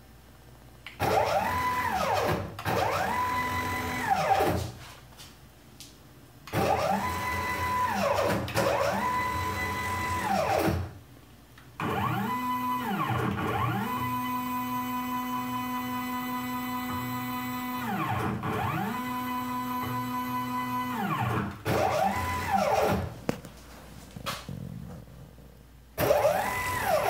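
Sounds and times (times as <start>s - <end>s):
stepper motors whining: 26.0s - 27.0s.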